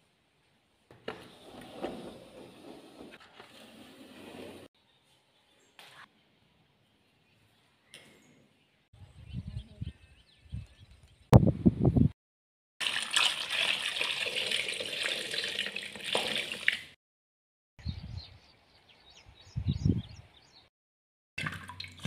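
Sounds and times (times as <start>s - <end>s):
wind rumbling on microphone: 9.0s - 12.2s, 17.8s - 18.5s, 19.2s - 20.4s
tap water pouring into metal bowl: 12.8s - 17.0s, 21.4s - 22.0s.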